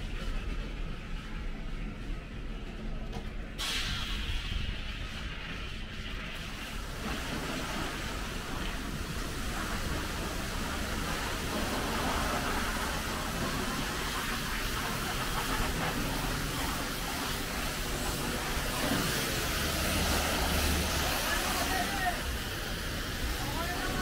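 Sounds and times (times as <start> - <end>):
pressure washer spraying water: 4.9 - 24.0.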